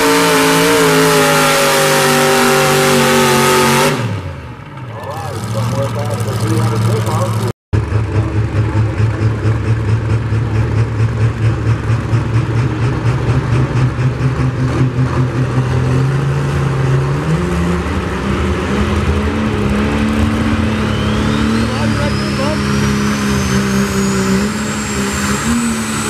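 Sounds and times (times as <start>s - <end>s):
truck engine idling: 4.4s - 17.2s.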